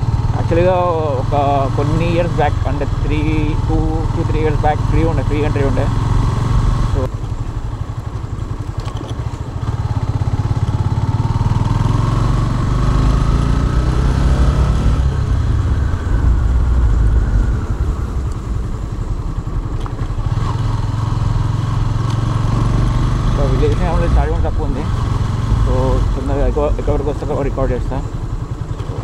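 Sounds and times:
motorcycle engine running: 0:00.0 - 0:29.0
rising whine: 0:11.2 - 0:19.8.

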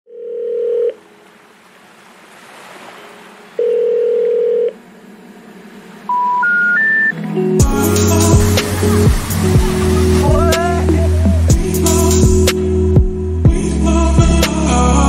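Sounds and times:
telephone ringback tone: 0:00.1 - 0:01.0, 0:03.6 - 0:04.8, 0:06.1 - 0:07.2
short rising beeps: 0:06.1 - 0:07.2
rising hiss: 0:07.6 - 0:12.8.

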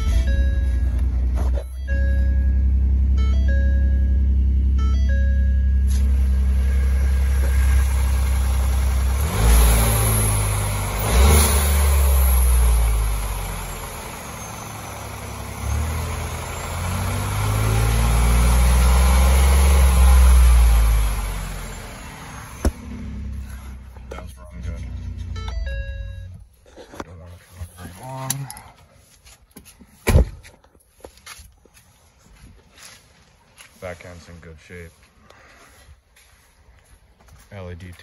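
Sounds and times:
pickup truck engine idling and revving: 0:00.0 - 0:28.8.

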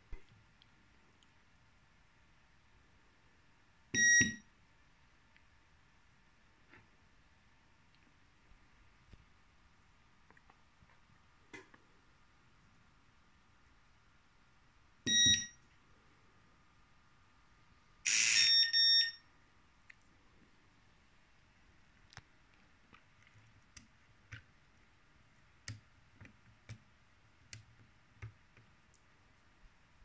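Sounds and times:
keypad beep: 0:04.0 - 0:04.4, 0:15.1 - 0:15.6, 0:18.1 - 0:19.2.

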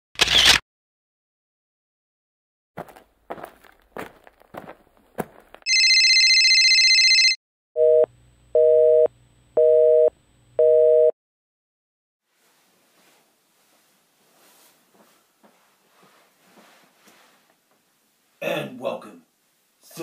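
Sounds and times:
telephone busy signal: 0:05.7 - 0:11.2.

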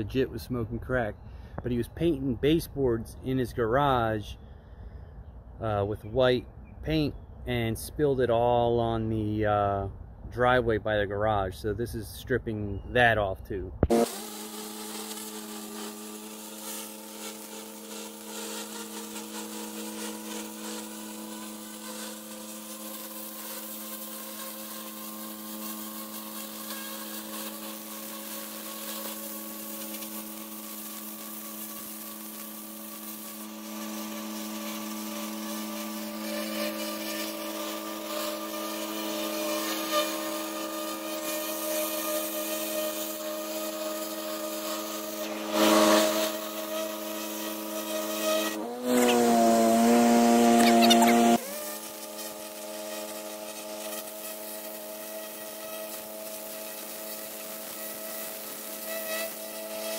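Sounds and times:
pressure washer humming: 0:13.8 - 0:59.9.

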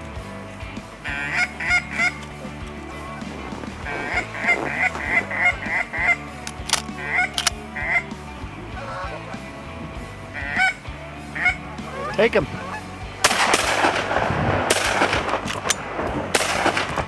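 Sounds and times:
waterfowl honking: 0:01.0 - 0:09.5, 0:10.3 - 0:13.0
sharp clicks: 0:02.0 - 0:03.0, 0:06.4 - 0:07.7, 0:13.3 - 0:17.0.

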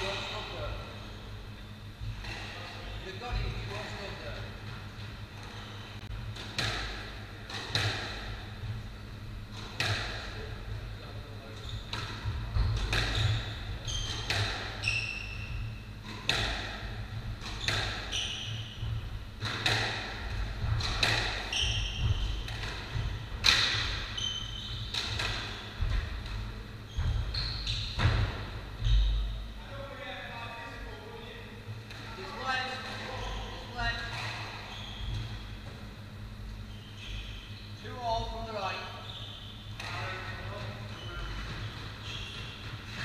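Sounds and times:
squash ball hitting rackets and walls: 0:04.7 - 0:10.8, 0:11.7 - 0:29.4, 0:39.7 - 0:43.0
shoes squeaking on wooden floor: 0:21.4 - 0:23.2, 0:26.9 - 0:28.1, 0:34.6 - 0:35.8, 0:41.0 - 0:43.0.

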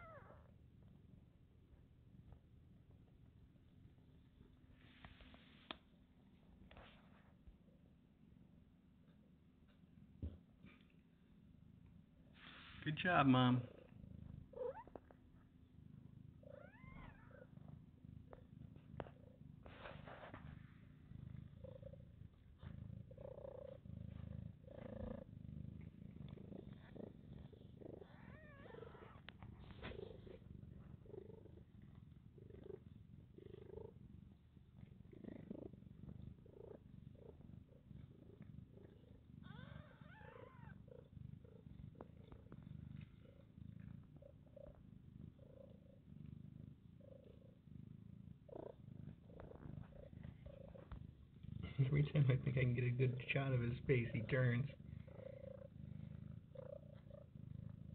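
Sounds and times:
cat purring: 0:00.0 - 0:57.9.

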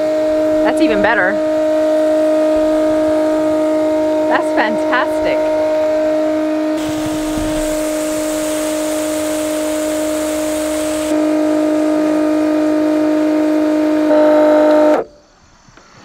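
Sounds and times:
water pump motor whine: 0:00.0 - 0:15.2
hose nozzle spray hiss: 0:06.7 - 0:11.5.

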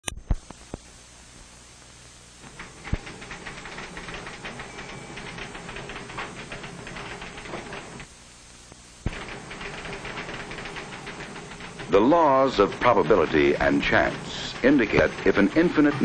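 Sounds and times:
steady hiss: 0:00.3 - 0:16.0
typewriter keys clattering: 0:02.5 - 0:08.0, 0:09.1 - 0:16.0.

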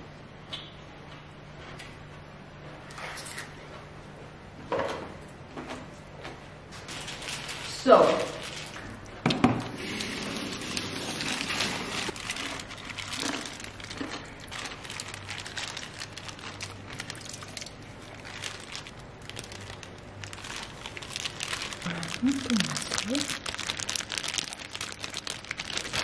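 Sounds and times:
crinkling handling noise: 0:05.6 - 0:26.0.

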